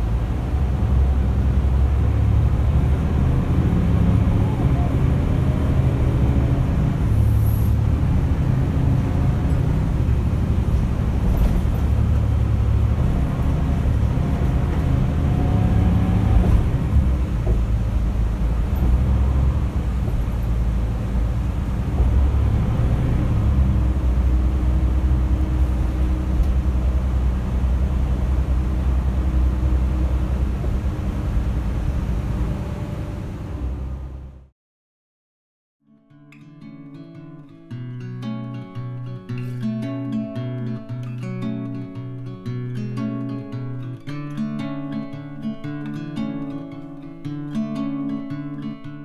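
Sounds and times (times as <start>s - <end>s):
bus engine droning: 0.0s - 34.5s.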